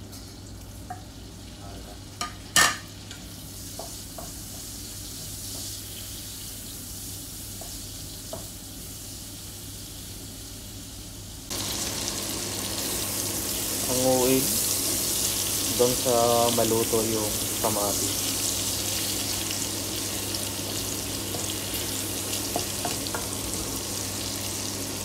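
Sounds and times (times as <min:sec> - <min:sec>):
vegetables sizzling in a frying pan: 0:00.0 - 0:25.0
spatula knocking on pan: 0:03.8 - 0:05.7, 0:22.5 - 0:23.3.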